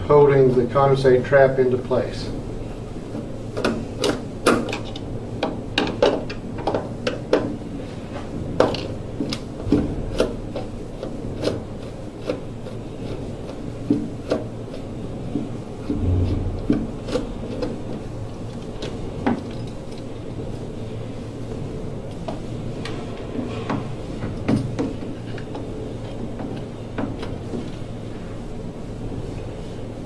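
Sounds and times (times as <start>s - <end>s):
dull low thump: 15.9s - 17.0s.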